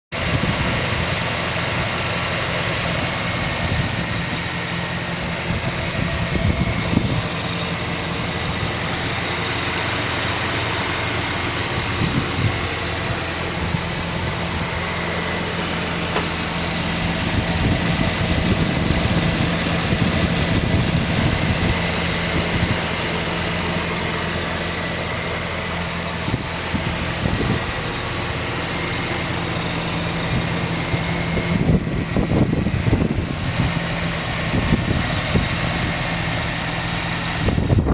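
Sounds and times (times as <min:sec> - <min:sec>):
truck engine idling: 0:00.1 - 0:37.9.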